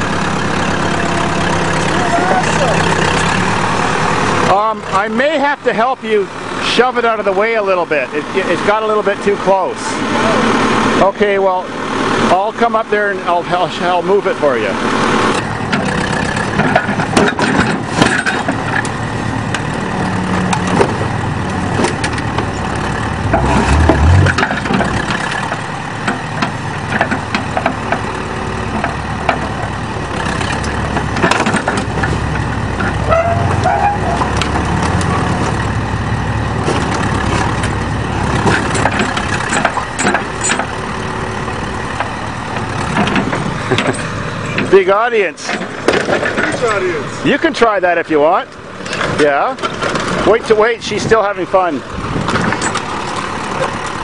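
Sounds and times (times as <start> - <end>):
tractor engine running: 0.0 - 54.0
sheet metal clanking and crunching: 15.3 - 46.9.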